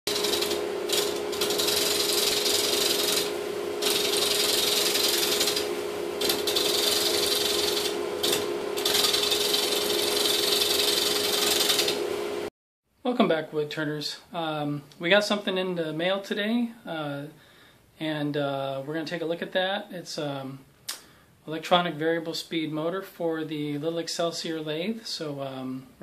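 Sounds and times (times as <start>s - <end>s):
gouge cutting wood hiss: 0.1s - 12.0s
lathe motor hum: 0.1s - 12.5s.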